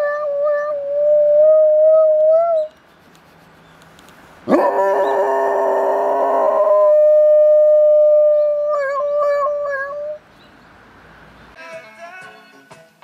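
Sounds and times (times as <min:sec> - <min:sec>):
dog howling: 0:00.0 - 0:02.7, 0:04.5 - 0:10.2.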